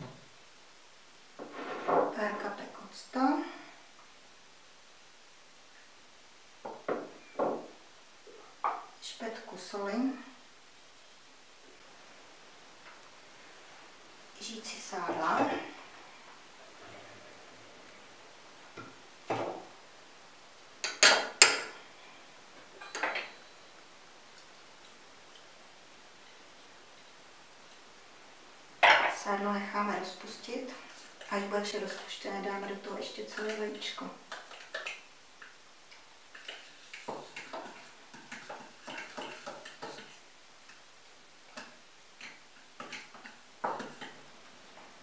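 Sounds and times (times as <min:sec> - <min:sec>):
metal spoon clinking on cup: 0:22.8 - 0:23.4.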